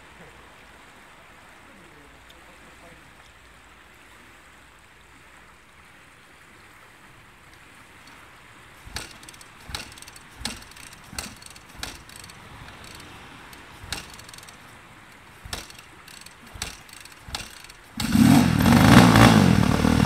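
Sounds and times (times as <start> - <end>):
kick-start lever clacks: 8.9 - 18.3.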